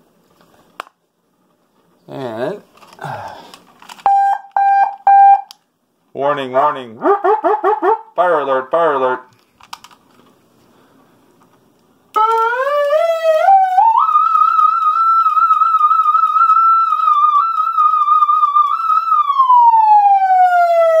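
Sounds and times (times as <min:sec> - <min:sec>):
electronic siren wailing: 0:12.2 - 0:21.0.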